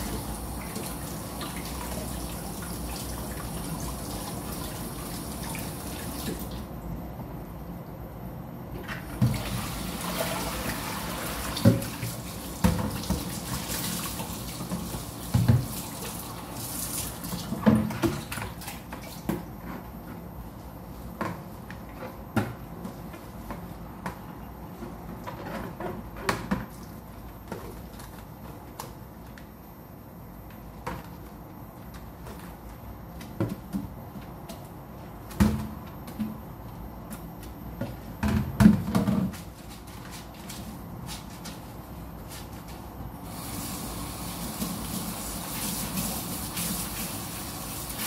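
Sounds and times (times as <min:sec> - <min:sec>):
tap water running: 0:00.0 - 0:06.7, 0:09.1 - 0:18.5, 0:43.3 - 0:48.0
sponge scrubbing plastic basin: 0:43.7 - 0:48.0.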